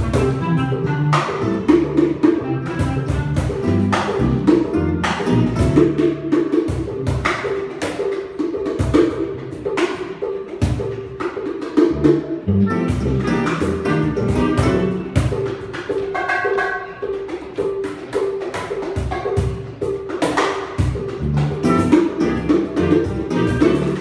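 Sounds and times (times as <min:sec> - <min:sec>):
clarinet melody: 0:00.0 - 0:05.9, 0:12.0 - 0:15.5, 0:21.3 - 0:24.0
upright bass: 0:00.0 - 0:07.1, 0:11.8 - 0:15.4, 0:21.0 - 0:24.0
hand percussion: 0:00.0 - 0:24.0.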